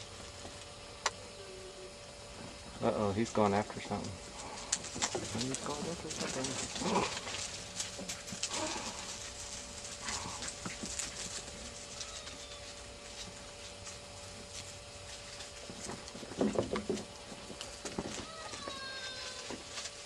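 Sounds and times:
puppy whine: 1.2 - 2.0, 11.6 - 12.9, 18.1 - 19.6
puppies rustling through dry leaves: 2.6 - 20.0.

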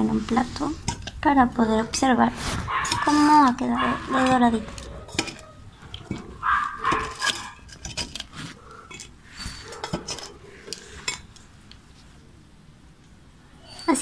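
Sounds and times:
tongs clinking on metal basket: 2.7 - 11.3.

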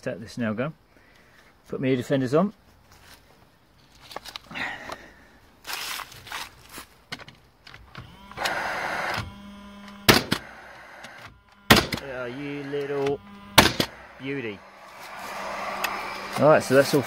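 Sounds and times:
nailer fan whirring: 7.9 - 17.0
nail gun shots: 10.1 - 10.5, 11.1 - 12.2, 13.0 - 14.0.

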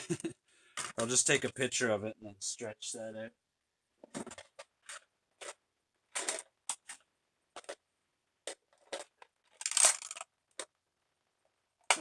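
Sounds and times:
plastic toys rustling and clattering: 0.7 - 1.2, 4.0 - 10.8.

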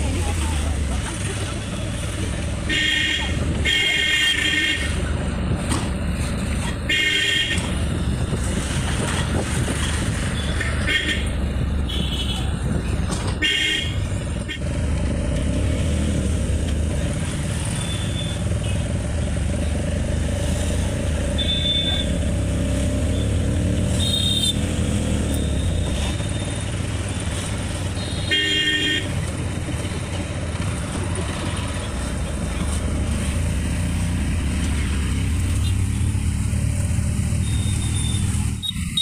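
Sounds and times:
engine and road rumble: 0.0 - 39.0
vehicle horn toots: 13.4 - 14.6, 24.0 - 24.6, 28.0 - 29.1.

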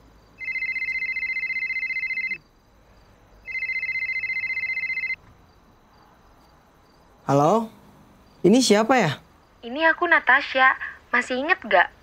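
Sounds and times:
mobile phone ringing: 0.4 - 2.4, 3.4 - 5.2.

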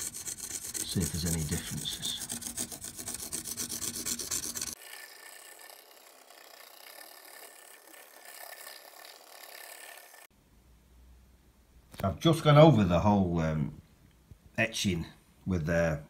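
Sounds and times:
marker rubbing on wood: 0.0 - 4.8.

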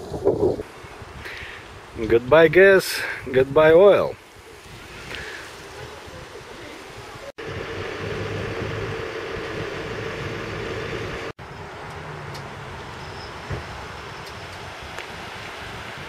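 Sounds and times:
wind noise: 0.0 - 11.3, 12.8 - 16.0
engine tone with low drone: 7.4 - 12.9
vehicle hum: 7.4 - 14.8.

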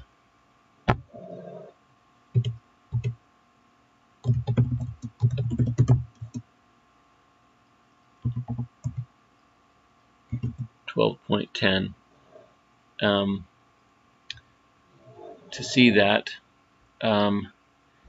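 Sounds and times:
typing on computer keyboard: 2.4 - 3.2, 4.2 - 6.4, 8.2 - 9.1, 10.3 - 10.7.

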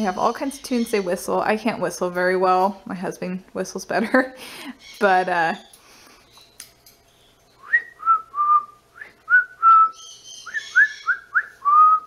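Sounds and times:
parrot whistling a tune: 7.6 - 12.0.

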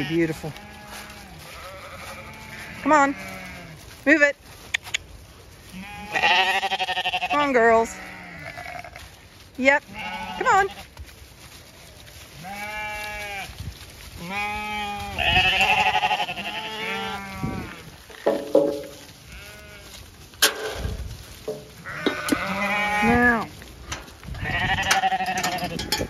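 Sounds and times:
sheep bleating: 0.0 - 3.8, 5.7 - 9.1, 9.8 - 10.9, 12.4 - 13.6, 14.2 - 18.0, 19.3 - 20.0, 21.8 - 23.6, 24.4 - 26.0.

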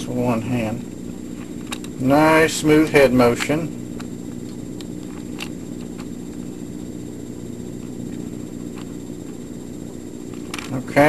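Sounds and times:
low background hum: 0.0 - 11.0.

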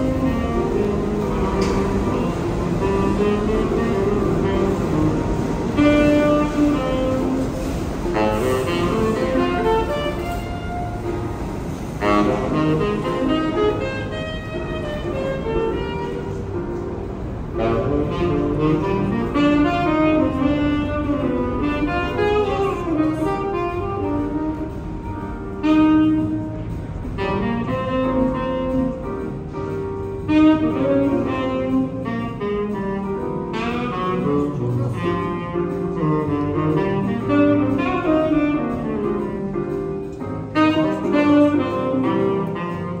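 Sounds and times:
bass line: 0.0 - 43.0
saxophone playing jazz melody: 0.0 - 43.0.

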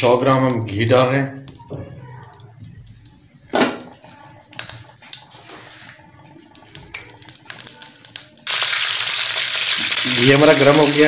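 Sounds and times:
hot ghee sizzling: 2.6 - 11.0.

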